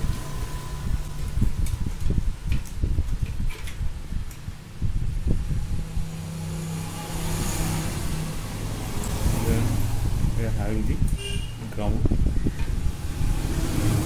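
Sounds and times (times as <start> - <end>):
wires clicking: 0.0 - 5.3.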